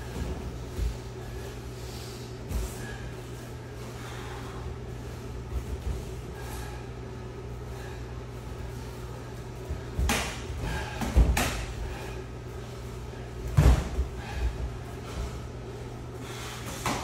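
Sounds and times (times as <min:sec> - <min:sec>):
steady low hum: 0:00.0 - 0:17.0
punches and kicks thudding: 0:13.5 - 0:14.2.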